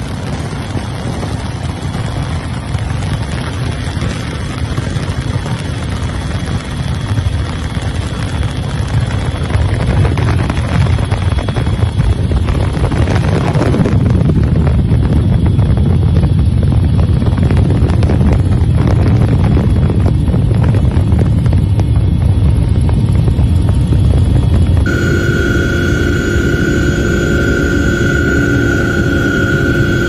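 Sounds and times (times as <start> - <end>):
helicopter engine and rotor drone: 0.0 - 30.0
wind buffeting microphone: 0.0 - 30.0.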